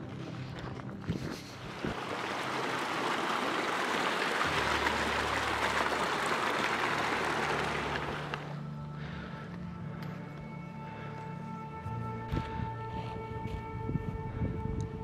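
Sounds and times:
stream rushing over stones: 1.6s - 8.6s.

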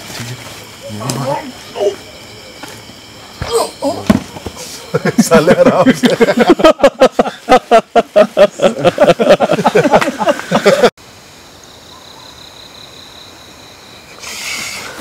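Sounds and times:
high insect buzz: 0.0s - 9.4s, 10.6s - 15.0s
man laughing loudly: 4.9s - 10.9s.

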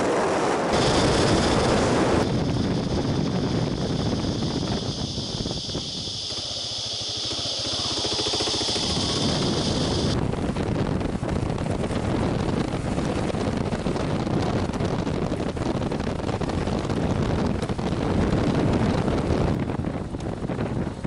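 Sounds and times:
tyres on dirt track: 0.0s - 21.0s
wind buffeting microphone: 0.0s - 21.0s
motorcycle rumble: 0.5s - 21.0s.

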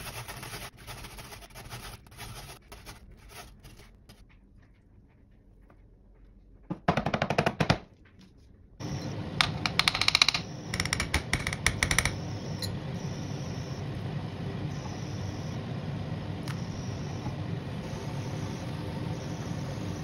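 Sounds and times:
faint high whine: 8.8s - 11.0s, 11.8s - 20.0s
hot pan hissing and humming: 11.6s - 20.0s.

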